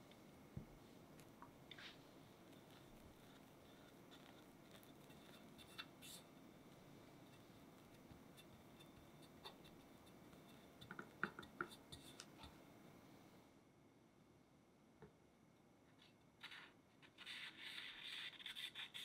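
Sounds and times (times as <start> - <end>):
spatula scraping frosting: 1.7 - 12.6, 16.0 - 19.0.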